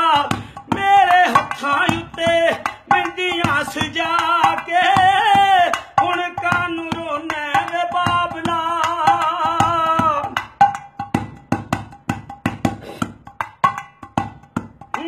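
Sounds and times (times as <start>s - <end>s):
hand drum strokes: 12.4s - 15.0s.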